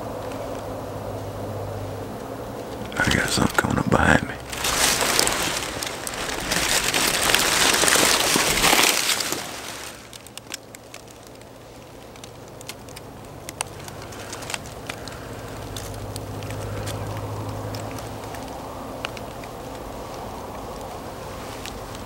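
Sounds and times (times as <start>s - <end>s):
dry leaves crackling: 0.0s - 22.0s
clothing rustling: 4.4s - 10.2s.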